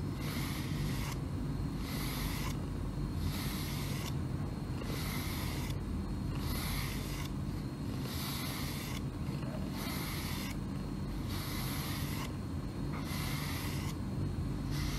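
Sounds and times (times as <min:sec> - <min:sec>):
brush rasping through fur: 0:06.4 - 0:07.3, 0:08.0 - 0:10.6, 0:13.0 - 0:14.0.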